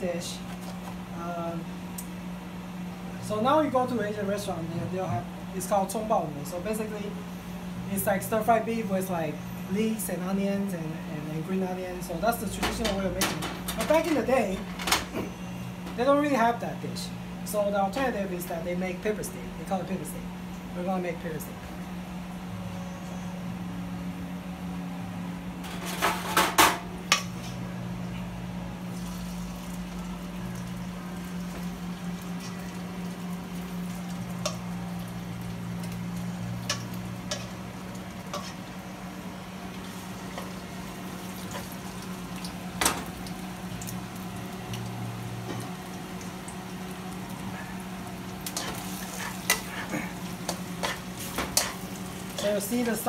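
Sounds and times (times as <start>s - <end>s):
steady low hum: 0.0s - 53.0s
utensils clattering: 12.4s - 15.3s, 25.6s - 27.4s, 48.4s - 53.0s
beef sizzling in a wok: 28.9s - 53.0s
metal tongs scraping in steel bowl: 38.3s - 38.6s, 48.5s - 51.8s, 52.4s - 53.0s.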